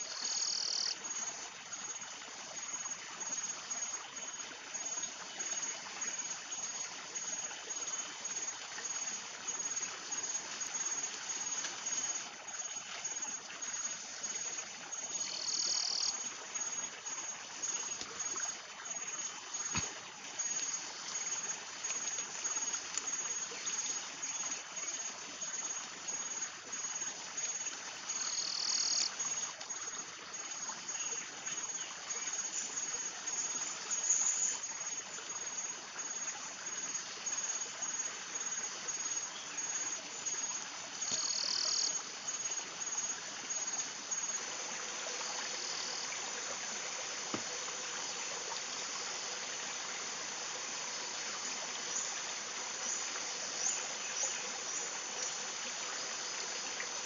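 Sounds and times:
insect trilling: 0.0s - 1.3s, 7.8s - 27.0s, 28.1s - 29.9s, 41.0s - 44.4s
stream rushing: 40.0s - 57.0s.

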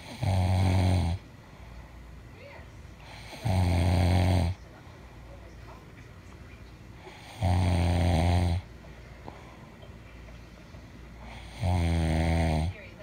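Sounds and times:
person snoring: 0.0s - 1.2s, 3.1s - 4.6s, 7.0s - 8.6s, 11.2s - 12.8s
quiet breathing: 0.0s - 13.0s.

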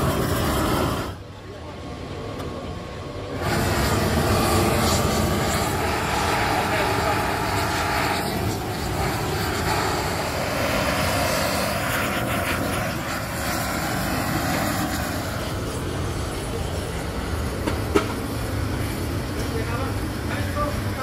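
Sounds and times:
gas torch flame roaring: 0.0s - 21.0s.

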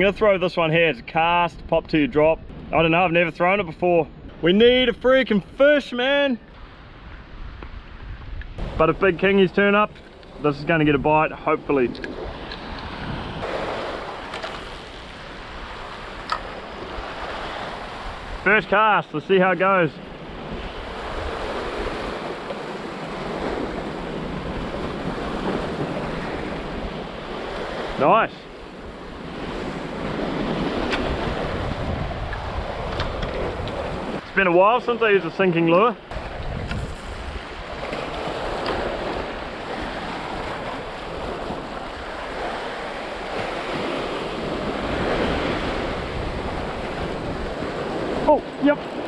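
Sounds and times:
wind buffeting microphone: 6.5s - 18.5s, 20.0s - 34.3s, 36.1s - 49.0s.

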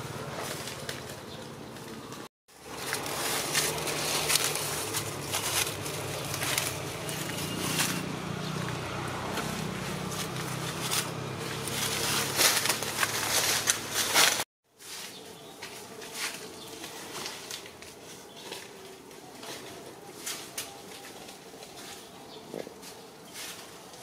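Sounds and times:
sharp rustles and snaps: 0.4s - 8.0s, 10.1s - 14.4s.

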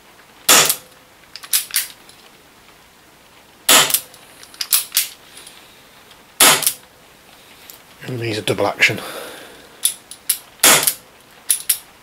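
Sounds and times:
airsoft revolver shots: 0.5s - 0.9s, 3.7s - 4.1s, 6.4s - 6.8s, 10.3s - 11.8s.

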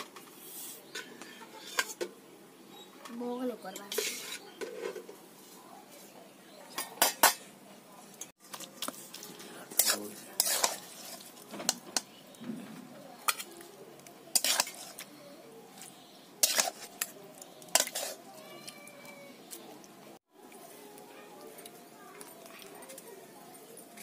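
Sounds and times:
metal spoon clinking on pots: 0.9s - 2.1s, 6.7s - 7.5s, 8.1s - 12.4s, 13.2s - 15.1s, 16.4s - 18.3s.

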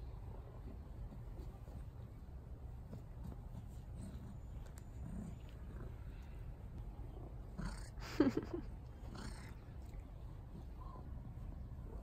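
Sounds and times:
soft rustling: 0.0s - 7.4s.

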